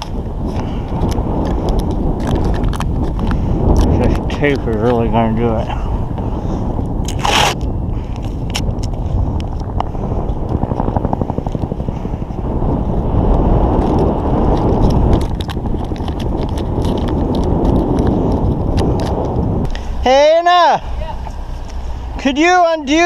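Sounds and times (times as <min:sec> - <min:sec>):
wind buffeting microphone: 0:00.0 - 0:23.0
hands wrapping tape: 0:07.1 - 0:07.6, 0:13.8 - 0:19.2.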